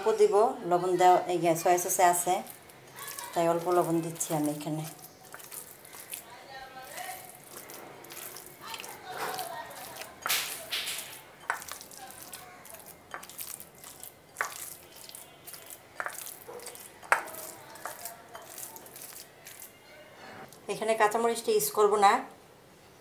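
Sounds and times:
hand squelching wet mince: 0:01.5 - 0:19.8.

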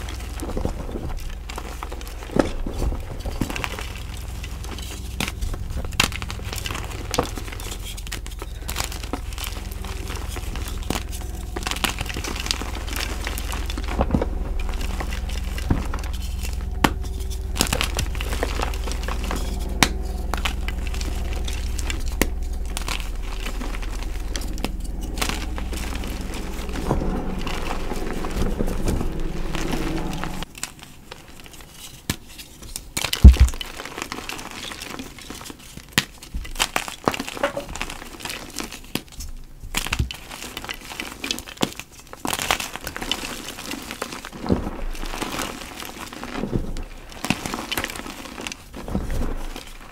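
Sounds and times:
steady low hum: 0:00.0 - 0:30.6
chalk crunching and crumbling: 0:00.0 - 0:49.9.

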